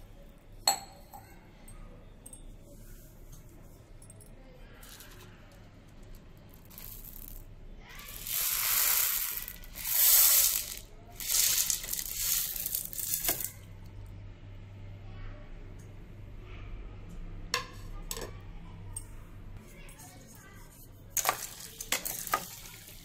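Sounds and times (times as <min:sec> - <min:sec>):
dry beans pouring into plastic bowl: 0:06.6 - 0:13.6, 0:21.2 - 0:23.0.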